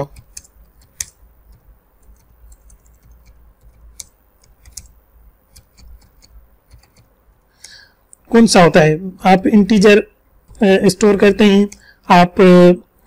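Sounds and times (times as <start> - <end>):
typing on computer keyboard: 0.0 - 7.8.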